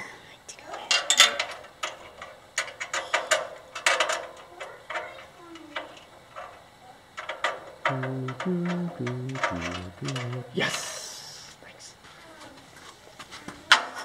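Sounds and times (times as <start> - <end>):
screw clicking against metal bracket: 7.2 - 10.4.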